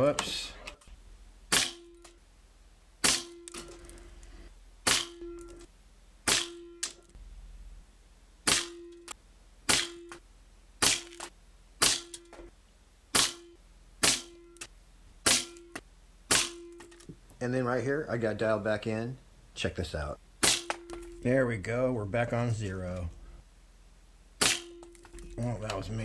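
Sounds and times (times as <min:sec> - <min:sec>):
air rifle shots: 0:01.5 - 0:02.0, 0:03.0 - 0:03.4, 0:04.8 - 0:05.2, 0:06.2 - 0:06.6, 0:08.4 - 0:08.8, 0:09.7 - 0:10.2, 0:10.8 - 0:12.2, 0:13.1 - 0:13.4, 0:14.0 - 0:14.4, 0:16.3 - 0:16.7, 0:20.4 - 0:20.8, 0:24.4 - 0:24.8.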